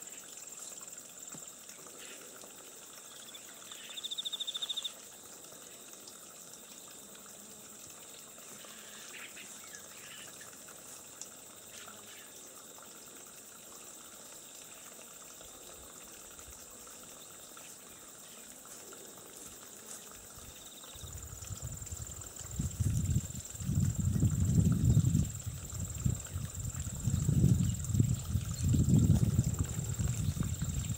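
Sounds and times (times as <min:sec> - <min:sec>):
water trickling into pool: 0:00.0 - 0:30.9.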